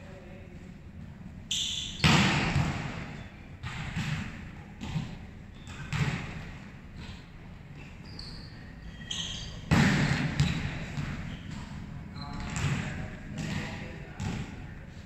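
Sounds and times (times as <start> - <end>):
volleyballs thudding on court floor: 2.0 - 7.2, 9.6 - 11.7, 12.4 - 14.6.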